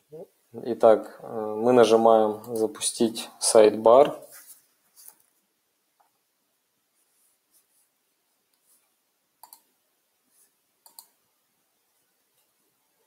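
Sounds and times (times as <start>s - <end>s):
faint computer mouse clicks: 9.4s - 9.7s, 10.8s - 11.2s.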